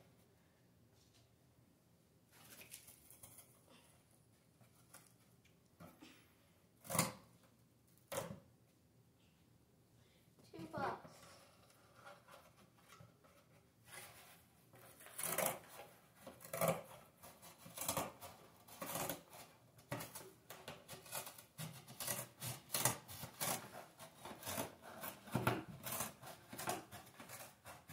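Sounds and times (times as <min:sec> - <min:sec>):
cats playing with toys: 0:02.3 - 0:06.0, 0:11.0 - 0:27.9.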